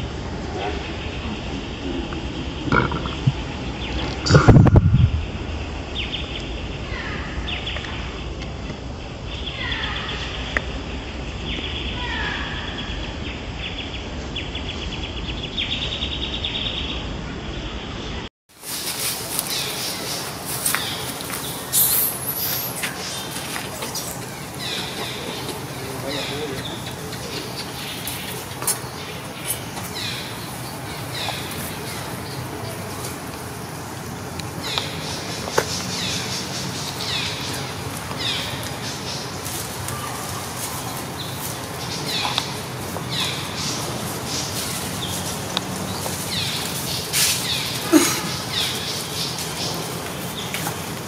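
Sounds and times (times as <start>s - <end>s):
outdoor background hiss: 0.0s - 51.0s
low rumble: 1.1s - 8.4s.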